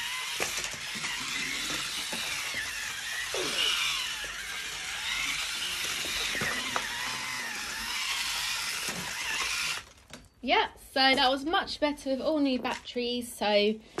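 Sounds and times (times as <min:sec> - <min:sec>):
toy train motor whirring: 0:00.0 - 0:10.0.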